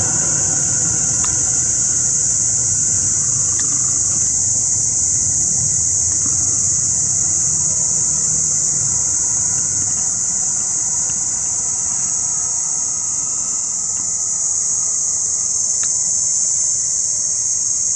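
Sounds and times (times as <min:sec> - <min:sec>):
low rumble: 0:00.0 - 0:12.8
crickets chirping: 0:00.0 - 0:17.9.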